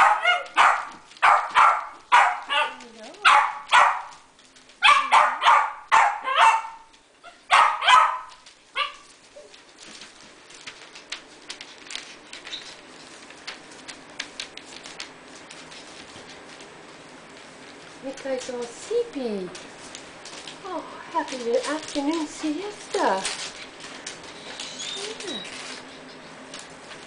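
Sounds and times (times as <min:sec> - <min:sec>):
puppy yapping: 0:00.0 - 0:09.6, 0:24.4 - 0:26.3
rustling: 0:00.0 - 0:27.0.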